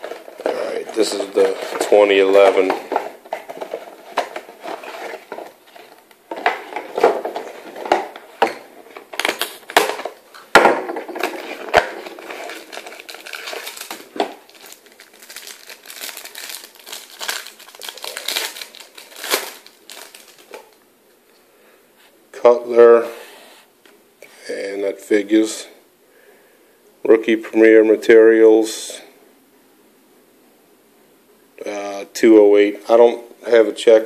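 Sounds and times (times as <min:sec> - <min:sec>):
wrapper crinkling: 0:00.0 - 0:10.4, 0:11.0 - 0:20.8.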